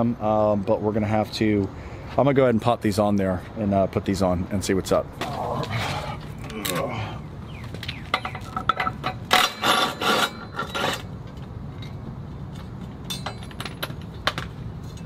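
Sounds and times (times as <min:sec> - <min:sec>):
metal scraping and clinking: 0:08.1 - 0:15.0.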